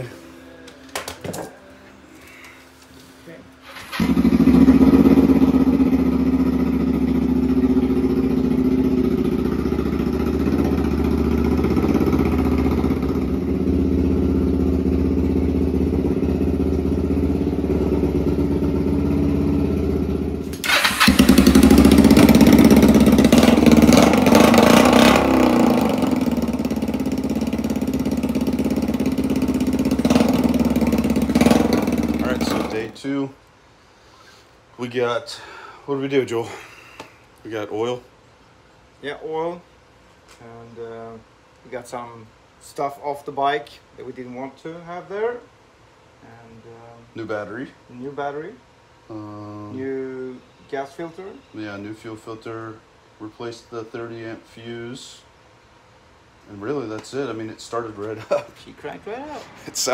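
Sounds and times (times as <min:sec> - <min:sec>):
motorcycle engine running and revving: 0:04.0 - 0:32.8.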